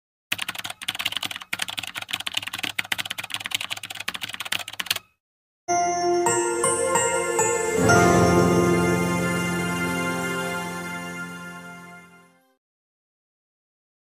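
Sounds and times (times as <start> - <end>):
fast keyboard typing: 0.3 - 5.1
intro music with sustained tones: 5.7 - 12.4.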